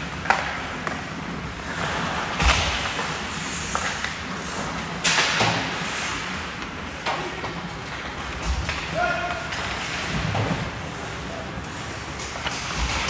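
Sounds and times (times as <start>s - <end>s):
skate blades scraping ice: 0.1s - 7.0s
hockey sticks and puck knocking: 0.1s - 10.8s.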